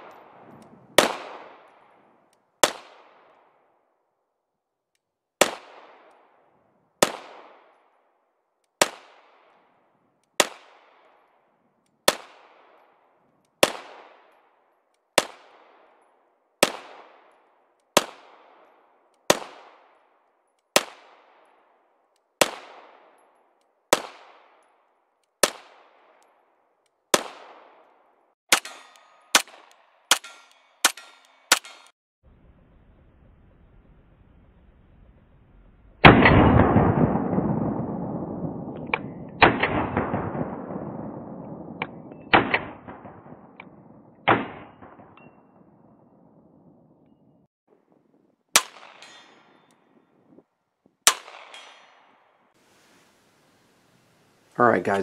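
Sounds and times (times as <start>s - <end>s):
pistol shots echoing: 0.0s - 2.0s, 2.6s - 3.6s, 5.4s - 7.9s, 8.8s - 11.4s, 12.0s - 20.0s, 27.1s - 31.9s, 36.1s - 46.1s, 48.5s - 49.8s, 51.0s - 52.2s.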